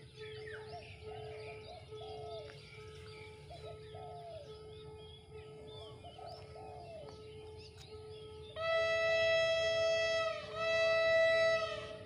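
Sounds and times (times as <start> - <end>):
birds chirping faintly: 0.0 - 9.6
train horn blasts: 8.0 - 12.0.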